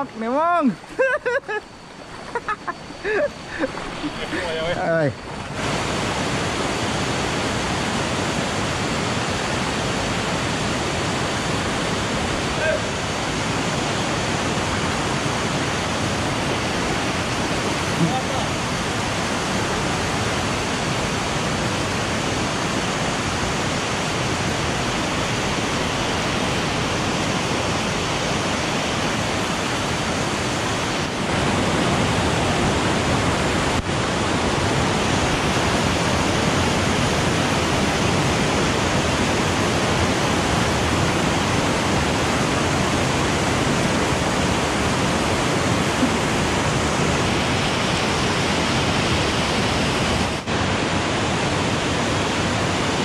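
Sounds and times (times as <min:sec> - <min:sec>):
river rushing over rocks: 0:01.6 - 0:53.0.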